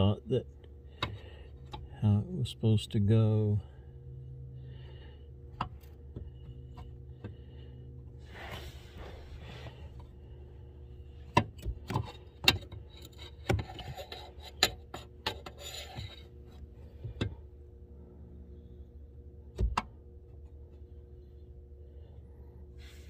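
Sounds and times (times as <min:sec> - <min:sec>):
steering shaft clicking and knocking: 0:05.5 - 0:07.5.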